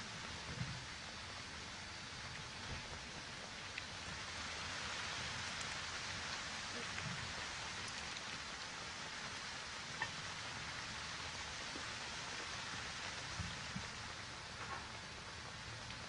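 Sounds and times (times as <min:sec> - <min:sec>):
steady outdoor hiss: 0:00.0 - 0:16.0
faint ticks: 0:02.2 - 0:04.2, 0:05.2 - 0:05.9, 0:06.7 - 0:08.7, 0:09.9 - 0:10.6, 0:11.3 - 0:16.0.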